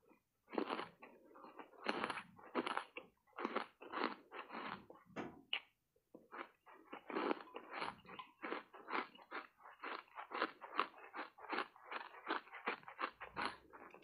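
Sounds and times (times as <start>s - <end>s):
chewing crunchy ice: 0.0s - 5.0s, 5.6s - 14.0s.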